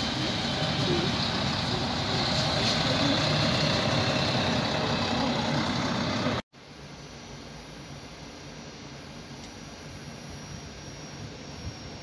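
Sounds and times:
diesel railcar engine rumbling: 0:00.0 - 0:06.4.

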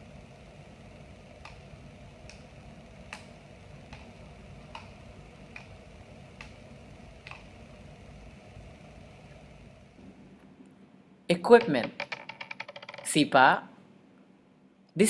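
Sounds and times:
faint low hum: 0:00.0 - 0:15.0
palm tapping toy: 0:11.5 - 0:13.2.

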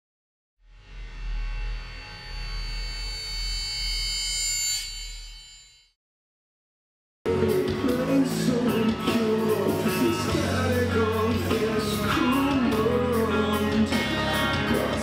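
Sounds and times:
rock and roll song: 0:07.3 - 0:15.0.

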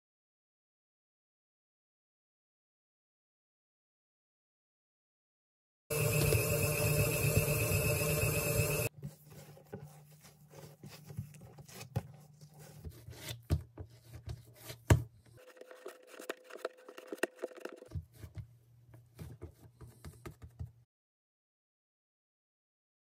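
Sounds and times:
stand mixer kneading dough: 0:05.9 - 0:08.9
hands patting and shaping dough: 0:08.9 - 0:20.9.

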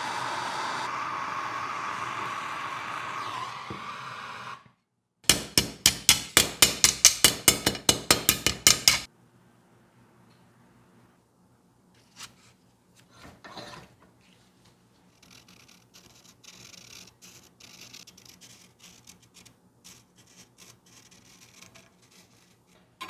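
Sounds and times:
hammer striking metal blade: 0:05.3 - 0:09.1.

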